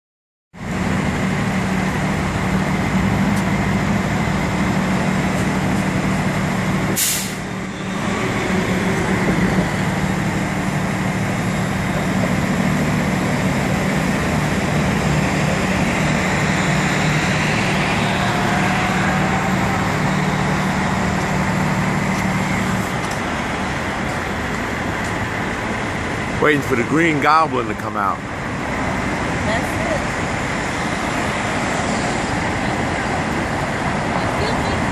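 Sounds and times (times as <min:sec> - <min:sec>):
traffic engine drone: 0:00.5 - 0:34.9
short sharp hiss: 0:07.0 - 0:07.4.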